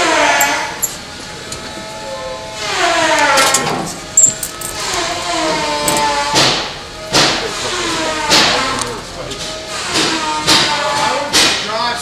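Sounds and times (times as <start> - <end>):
sharp knocks: 5.9 - 7.4, 8.2 - 8.7, 9.9 - 11.7.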